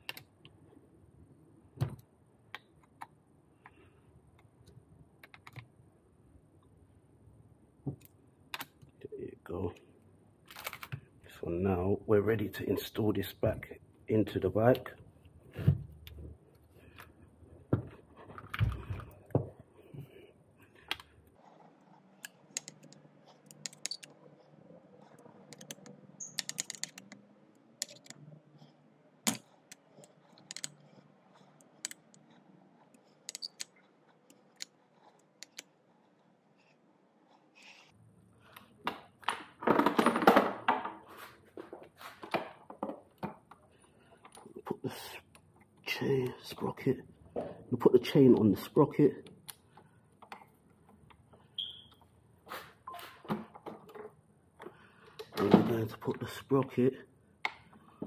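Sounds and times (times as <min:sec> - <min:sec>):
metallic tool clicks and taps: 0:22.2 - 0:24.1, 0:30.5 - 0:30.8, 0:33.3 - 0:33.7.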